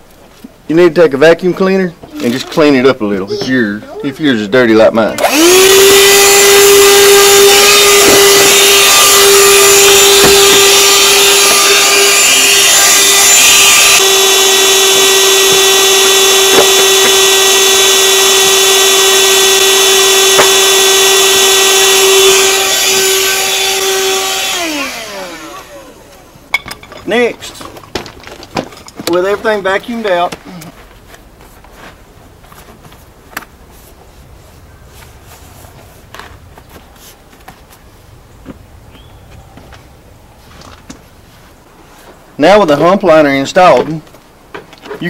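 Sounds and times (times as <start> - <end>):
handheld vacuum cleaner running: 5.2 - 26.3
vacuum nozzle knocking on floor: 16.5 - 17.2.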